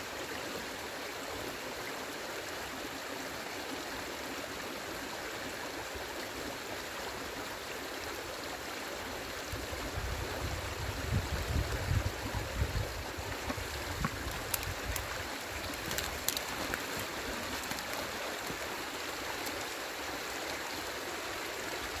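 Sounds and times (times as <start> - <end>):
stream rushing: 0.0 - 22.0
faint clicks: 13.5 - 18.7.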